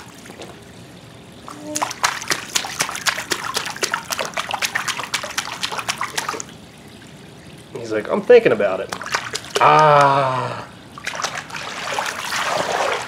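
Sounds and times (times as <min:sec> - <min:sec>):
water splashed by hand: 0:01.7 - 0:06.5, 0:08.9 - 0:09.7, 0:11.0 - 0:13.0.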